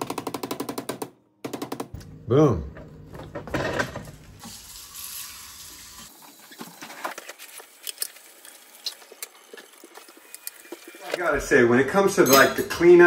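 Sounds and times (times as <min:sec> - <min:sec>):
tap water running: 0:03.8 - 0:11.4
metallic clinks: 0:12.2 - 0:12.9.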